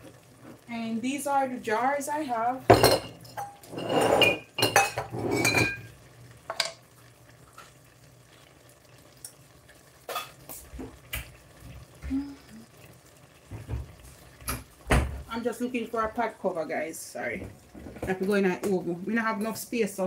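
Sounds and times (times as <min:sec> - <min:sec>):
glass jars clinking: 0:02.7 - 0:05.9.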